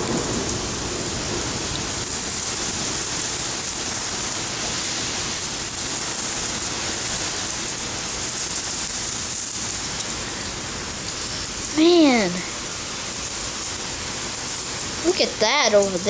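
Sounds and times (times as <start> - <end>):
heavy rain pouring: 0.0 - 16.0.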